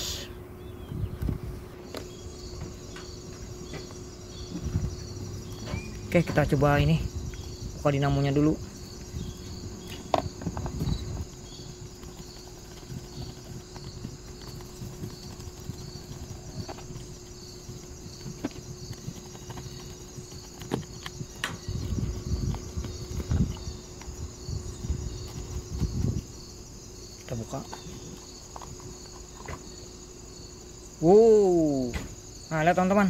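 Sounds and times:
crickets chirring: 0.0 - 33.0.

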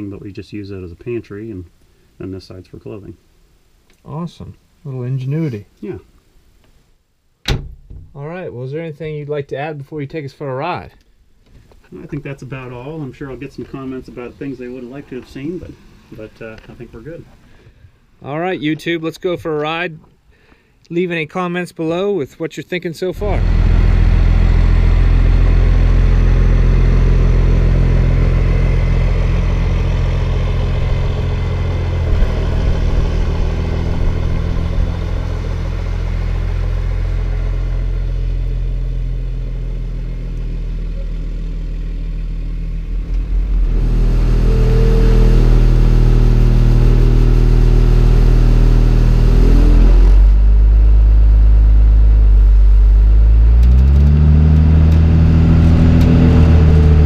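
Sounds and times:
diesel engine droning: 23.1 - 57.0
diesel engine accelerating: 23.2 - 57.0.

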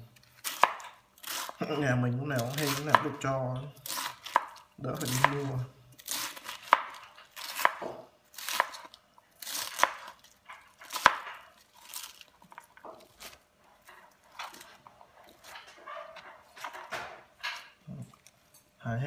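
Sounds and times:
knife crunching through cabbage: 0.1 - 1.7, 2.3 - 3.2, 3.8 - 15.6
cabbage rustling: 0.1 - 3.0, 3.8 - 16.9.

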